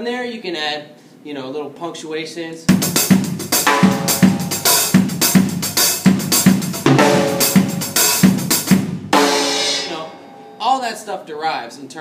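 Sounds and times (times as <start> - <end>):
bass drum thumping: 2.7 - 10.2
drum kit groove: 2.7 - 10.6
ringing cymbal accent hit: 3.6 - 6.1, 6.9 - 8.3, 9.2 - 10.8.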